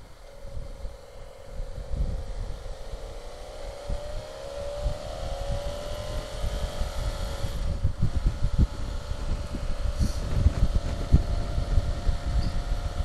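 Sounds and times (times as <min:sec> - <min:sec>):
motorcycle engine running: 0:00.0 - 0:13.0
wind buffeting microphone: 0:00.0 - 0:13.0.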